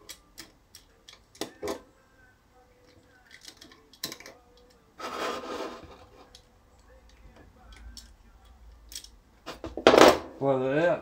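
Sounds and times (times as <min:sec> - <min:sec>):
light clicks and taps of parts: 0:00.0 - 0:01.8, 0:06.3 - 0:09.2
scraping rub: 0:05.0 - 0:06.4.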